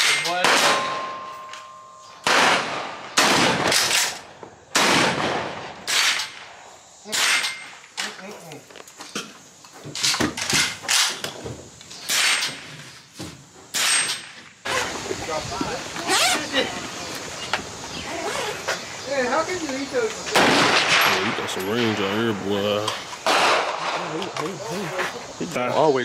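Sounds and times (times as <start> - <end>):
echoing gunshots: 0.0 - 1.3, 2.2 - 7.8, 12.1 - 12.6, 20.3 - 22.4, 23.2 - 24.2.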